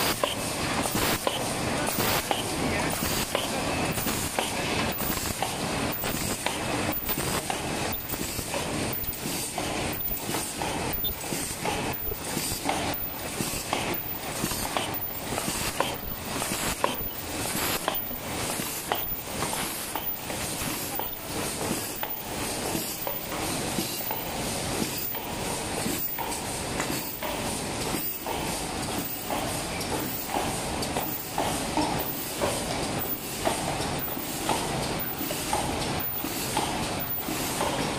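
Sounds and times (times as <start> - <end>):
paper cup machine running: 0.0 - 26.3.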